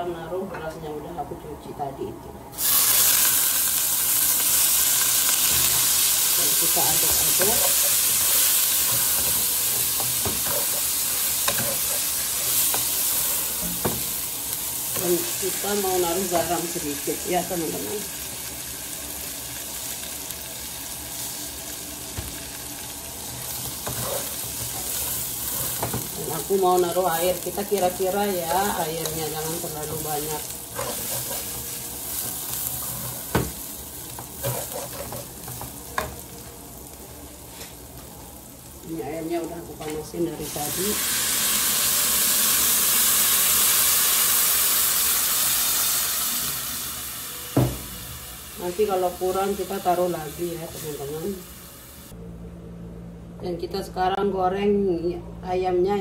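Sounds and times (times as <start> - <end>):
rice sizzling in hot oil: 2.6 - 39.4, 40.3 - 52.2
wooden spatula scraping: 23.6 - 25.9, 30.7 - 31.7, 34.4 - 35.4.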